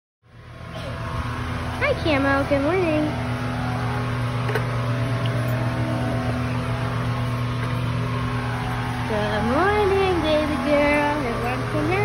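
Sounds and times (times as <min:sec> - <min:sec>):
low mechanical hum: 0:00.2 - 0:12.0.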